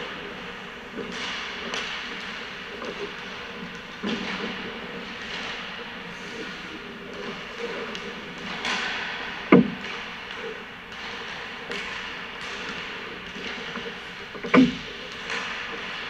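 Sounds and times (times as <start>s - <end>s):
hockey pucks being hit: 8.4s - 10.1s, 14.4s - 16.0s.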